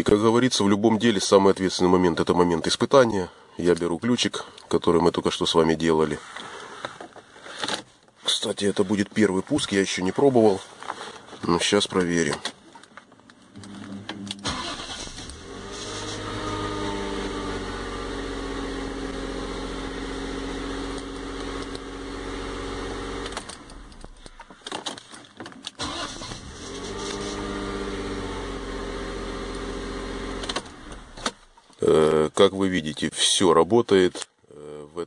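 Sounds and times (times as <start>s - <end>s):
car engine starting and idling: 13.6s - 24.5s, 25.8s - 31.7s.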